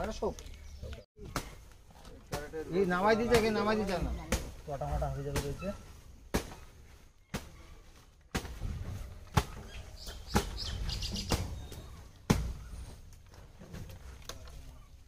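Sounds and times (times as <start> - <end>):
birds chirping: 0.0 - 1.8, 9.0 - 13.0.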